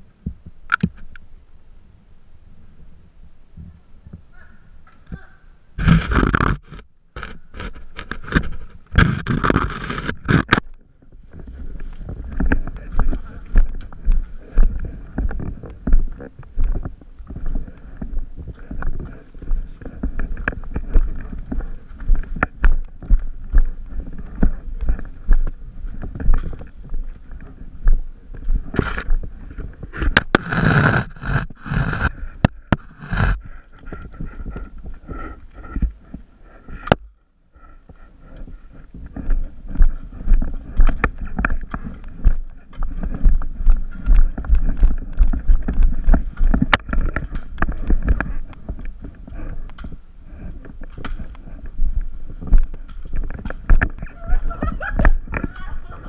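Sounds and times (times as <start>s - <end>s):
footsteps and handled gear: 5.8s - 56.0s
wind buffeting microphone: 38.4s - 56.0s.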